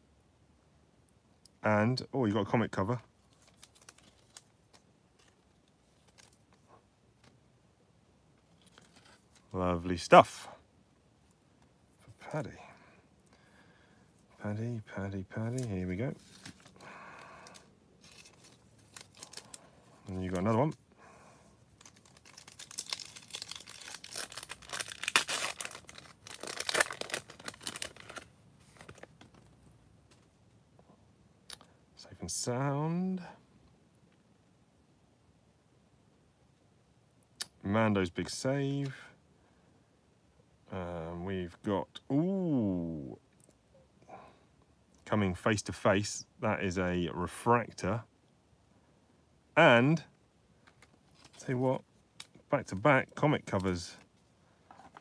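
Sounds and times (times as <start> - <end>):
foil wrapper tearing and crinkling: 3.3 - 4.5, 17.5 - 19.6, 21.8 - 29.1
trading cards rustling: 3.3 - 6.7, 15.4 - 20.8, 21.7 - 29.6, 50.7 - 51.6.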